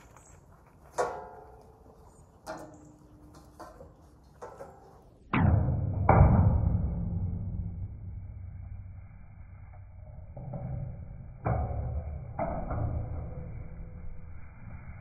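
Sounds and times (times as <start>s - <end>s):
metal gate knocks and rattles: 0.9s - 1.8s, 2.4s - 7.8s, 10.2s - 13.7s.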